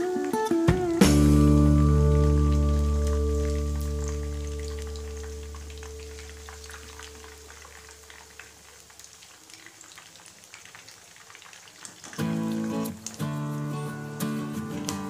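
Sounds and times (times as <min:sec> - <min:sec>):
background music: 0:00.0 - 0:06.2
chicken deep-frying in oil: 0:00.0 - 0:15.0.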